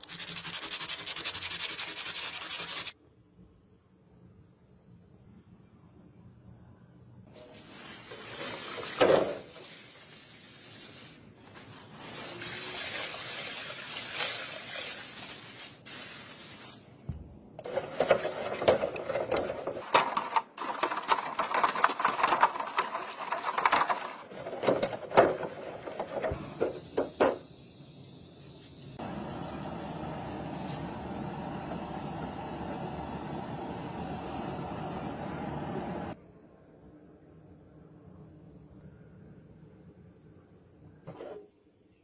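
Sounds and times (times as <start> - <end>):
hiss: 26.1 - 36.2.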